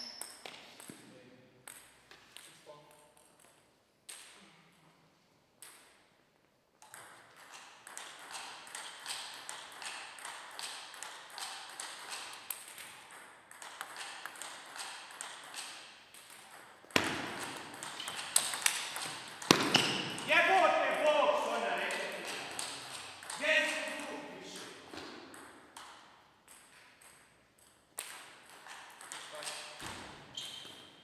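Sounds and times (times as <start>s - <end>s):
ball striking paddle and table: 6.8s - 20.3s, 24.9s - 31.0s.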